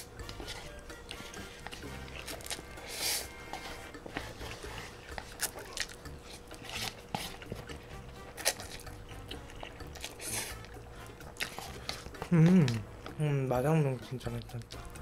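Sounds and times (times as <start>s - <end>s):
person slurping noodles: 1.8s - 5.5s, 10.0s - 10.7s.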